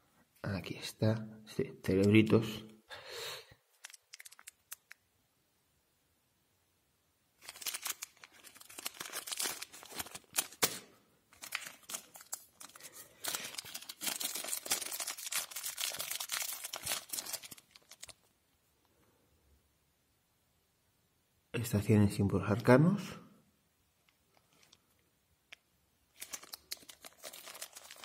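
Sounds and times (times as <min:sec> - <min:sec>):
plastic bag crinkling: 0:03.8 - 0:04.9, 0:07.4 - 0:18.3, 0:26.1 - 0:28.0.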